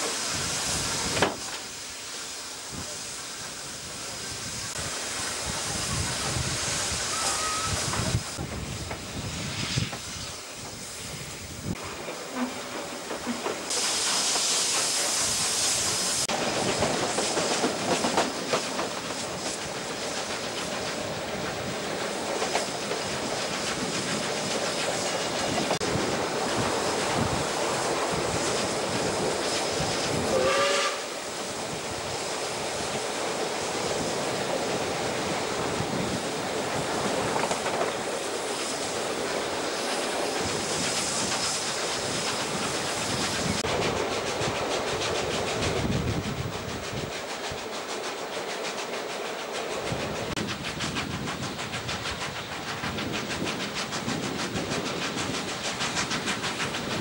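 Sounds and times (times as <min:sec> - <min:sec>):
steam hissing: 0:00.0 - 0:57.0
steam train running on rails: 0:00.0 - 0:57.0
train whistle toot: 0:07.0 - 0:08.1, 0:30.3 - 0:31.2.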